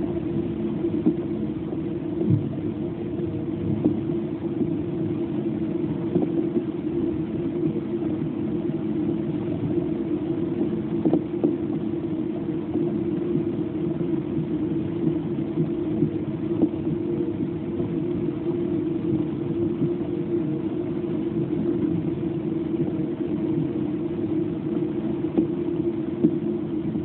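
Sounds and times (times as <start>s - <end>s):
faint hum: 0.0s - 27.0s
faint ticks: 26.2s - 26.4s.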